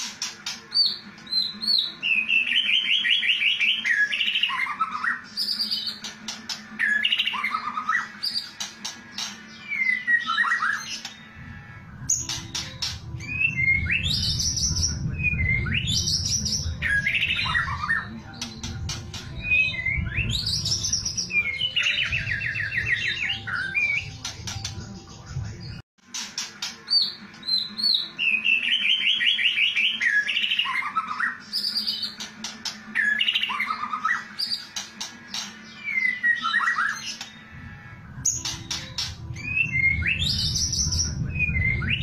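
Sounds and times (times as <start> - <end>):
songbird singing whistles and trills: 0.1 - 6.1, 6.7 - 11.4, 12.1 - 25.8, 26.4 - 32.3, 32.9 - 37.5, 38.2 - 42.0
low rumble: 11.4 - 25.8, 37.6 - 42.0.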